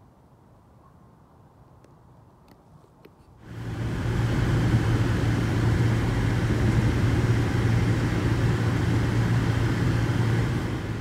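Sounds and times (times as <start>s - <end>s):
engine and road noise in cabin: 3.4s - 11.0s.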